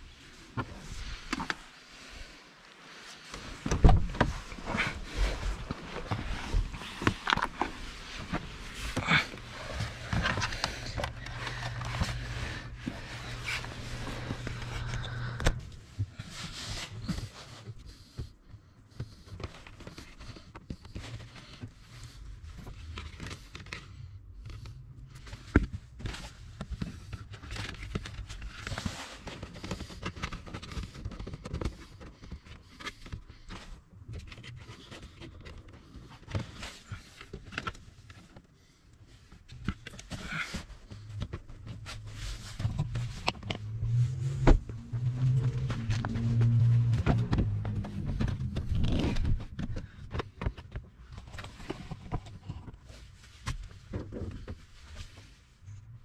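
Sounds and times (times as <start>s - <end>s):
wires and connectors rustling and clicking: 2.6s - 56.0s
low hum: 4.0s - 16.2s, 40.9s - 50.2s.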